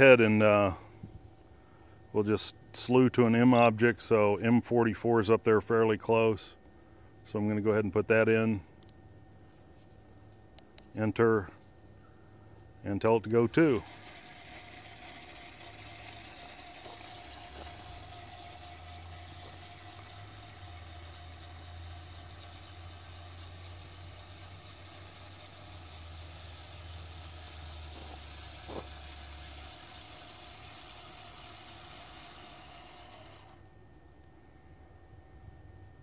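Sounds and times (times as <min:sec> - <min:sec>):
low hum: 0:00.0 - 0:36.0
power inverter whine: 0:00.0 - 0:36.0
telescope drive motors whirring: 0:13.0 - 0:33.8.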